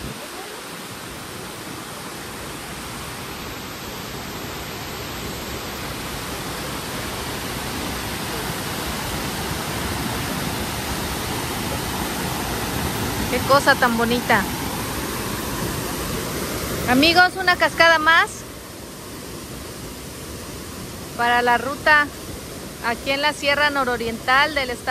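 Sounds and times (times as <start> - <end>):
waterfall rushing: 0.0 - 24.9.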